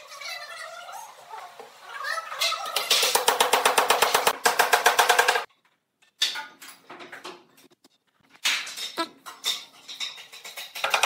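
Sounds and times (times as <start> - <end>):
irregular knocking and clatter: 2.7 - 11.0.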